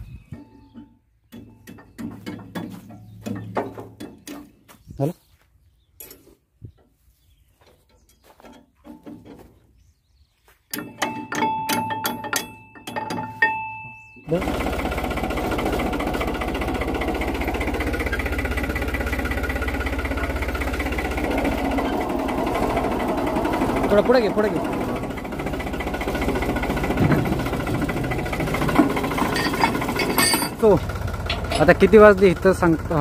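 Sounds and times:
tractor diesel engine running: 0:00.0 - 0:05.0, 0:10.7 - 0:33.0
metallic knocking and rattling: 0:00.3 - 0:04.7, 0:10.7 - 0:13.7, 0:14.4 - 0:32.6.

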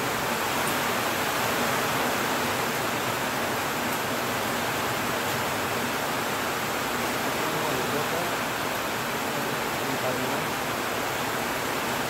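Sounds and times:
heavy rain on metal roof: 0:00.0 - 0:12.0.

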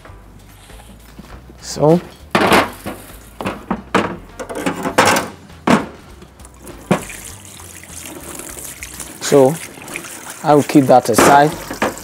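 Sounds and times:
kitchen items clattering: 0:01.9 - 0:06.0, 0:09.1 - 0:12.0
chopping board set down: 0:02.3 - 0:06.0.

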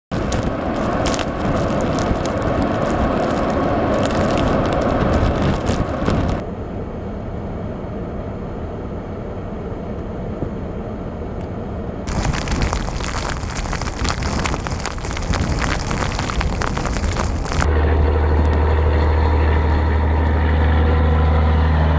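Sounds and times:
blizzard wind gusting: 0:00.1 - 0:06.4, 0:12.1 - 0:17.7
wind buffeting microphone: 0:00.1 - 0:06.4, 0:12.1 - 0:17.7.

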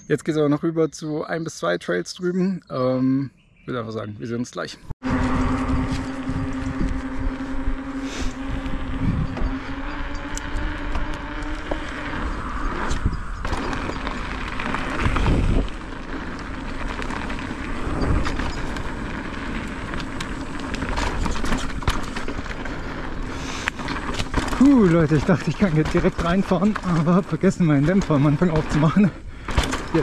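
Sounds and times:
wind noise on microphone: 0:05.0 - 0:22.1
bike rattles and knocks: 0:05.0 - 0:30.0
tyre rumble: 0:05.0 - 0:30.0.

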